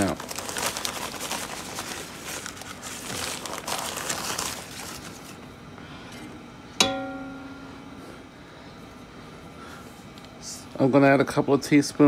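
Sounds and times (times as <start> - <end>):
plastic bag crinkling: 0.0 - 5.4
cup striking metal bowl: 6.8 - 7.6
metal bowl ringing: 6.8 - 8.0.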